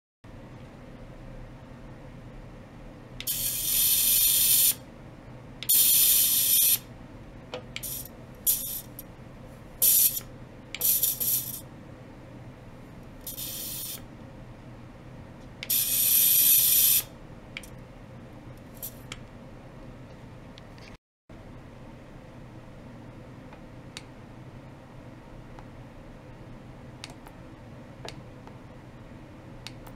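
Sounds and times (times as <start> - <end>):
spray can hissing: 3.3 - 4.8, 5.7 - 6.8, 9.8 - 10.2, 10.8 - 11.6, 13.2 - 14.0, 15.7 - 17.1.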